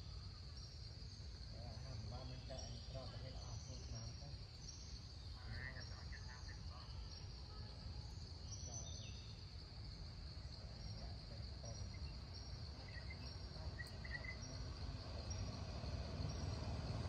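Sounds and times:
insects droning: 0.0s - 17.0s
low motor rumble: 11.7s - 17.0s.

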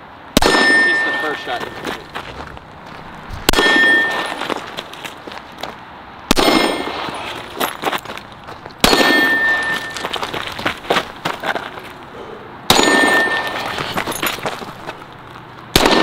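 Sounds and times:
pistol shots: 0.4s - 1.8s, 3.5s - 4.4s, 6.3s - 7.2s, 8.8s - 10.0s, 12.7s - 13.6s, 15.7s - 16.0s
steel target ringing: 0.4s - 2.0s, 3.5s - 4.6s, 6.3s - 7.2s, 8.8s - 10.1s, 12.7s - 14.0s.

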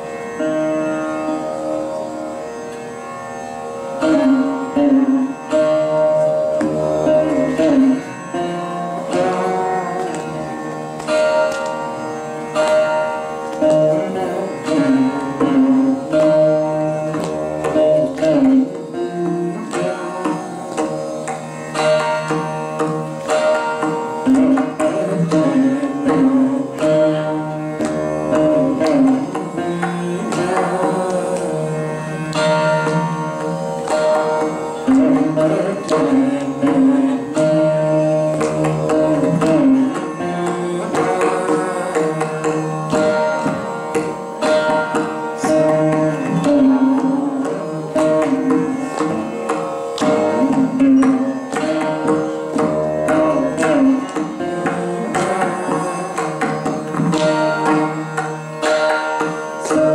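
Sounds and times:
plucked veena with drone: 0.0s - 59.9s
mridangam drumming: 4.0s - 59.9s.

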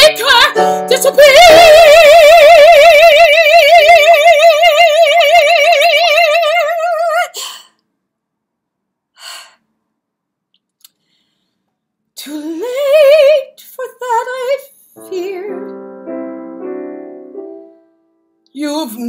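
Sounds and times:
soft breath: 10.9s - 11.8s.

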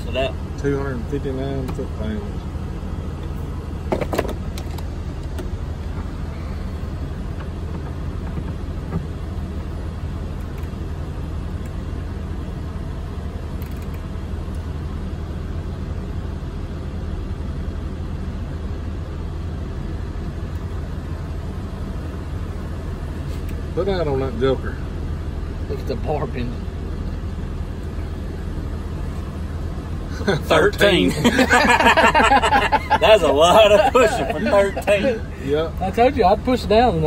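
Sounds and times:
low mechanical drone: 0.0s - 37.0s.

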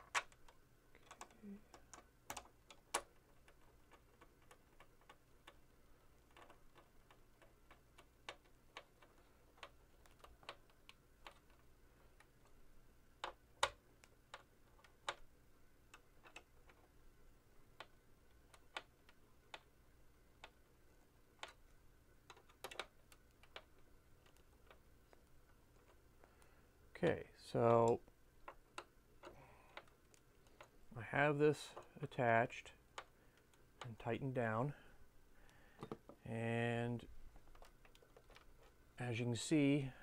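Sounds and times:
small screws clicking as tightened: 0.1s - 12.6s, 22.3s - 24.8s.

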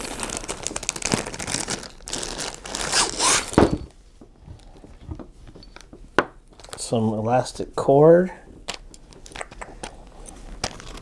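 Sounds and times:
plastic bag crinkling and tearing: 0.0s - 3.7s.

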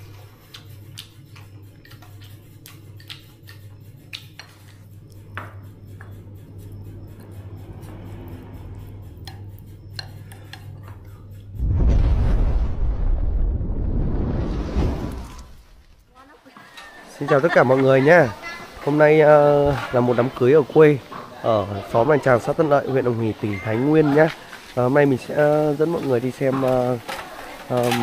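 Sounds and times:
steady low hum: 0.0s - 16.2s
loud low rumble: 11.5s - 15.8s.

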